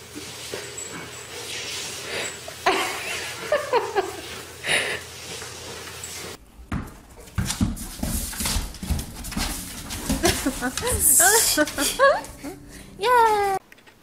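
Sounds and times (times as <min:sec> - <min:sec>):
dog scuffling on wooden floor: 0:05.2 - 0:12.6.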